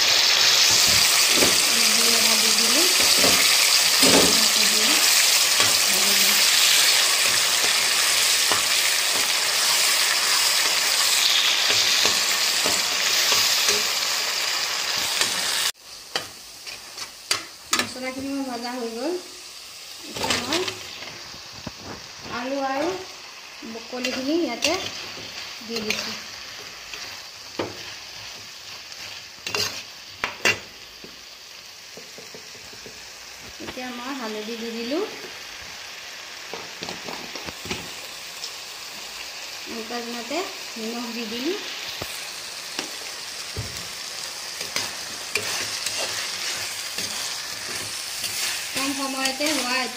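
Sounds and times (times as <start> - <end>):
spices sizzling in hot oil: 0.0 - 49.9
spatula scraping a pan: 23.9 - 30.7, 42.7 - 49.9.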